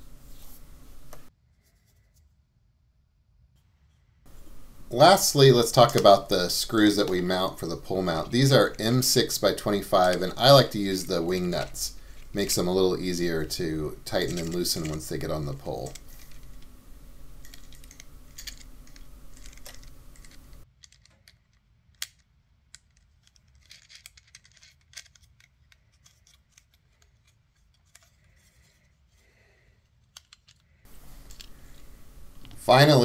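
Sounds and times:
background hiss: 0:04.2 - 0:20.7, 0:27.9 - 0:33.0.

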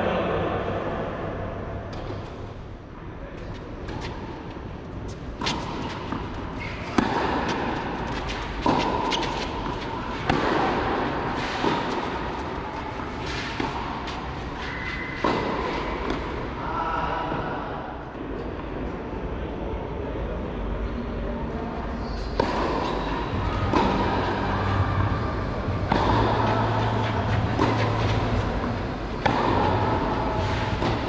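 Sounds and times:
tennis racket hitting ball: 0:05.1 - 0:16.4, 0:22.4 - 0:31.0.

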